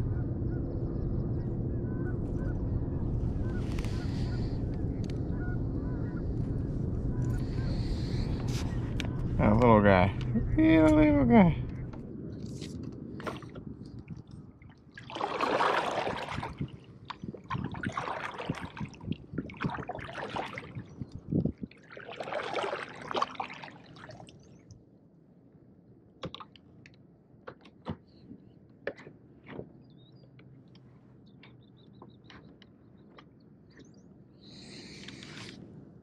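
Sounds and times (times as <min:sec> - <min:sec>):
water splashing against kayak: 0:13.2 - 0:24.6.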